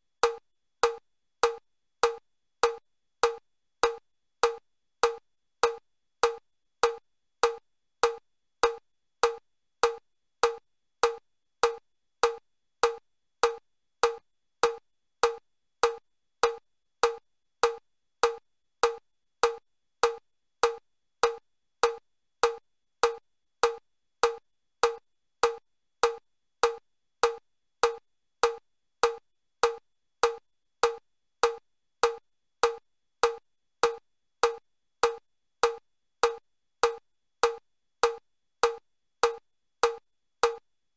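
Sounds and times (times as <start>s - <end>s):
metronome clicking: 21.2s - 40.6s.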